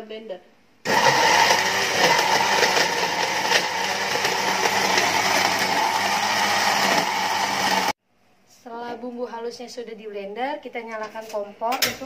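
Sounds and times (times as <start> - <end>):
electric blender running: 0.9 - 8.0.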